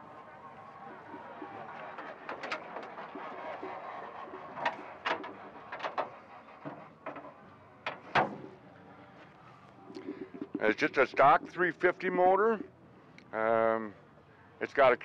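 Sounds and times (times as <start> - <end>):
background noise: 0.0 - 15.0
metal clicks and knocks of hood: 4.6 - 8.5.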